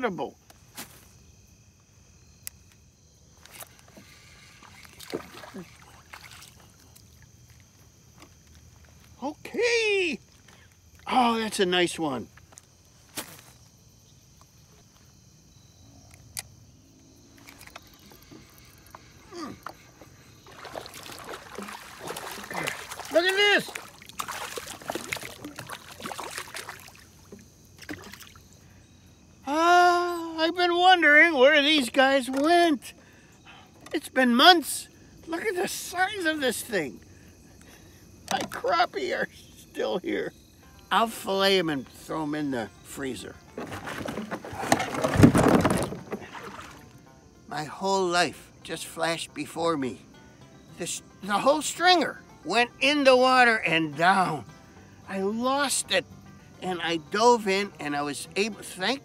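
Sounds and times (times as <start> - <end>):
water splashing: 3.5 - 7.7, 17.4 - 28.5, 43.5 - 47.0
person speaking: 21.6 - 23.8.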